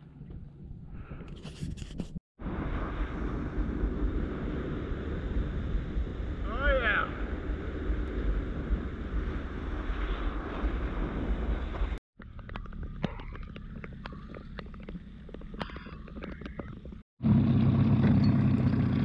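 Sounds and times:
wind buffeting microphone: 0.0 - 12.8
outboard engine running: 12.2 - 19.0.

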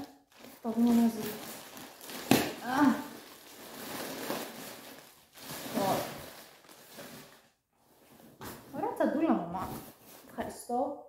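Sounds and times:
packaging rustling and crinkling: 0.0 - 8.8, 9.7 - 10.4.

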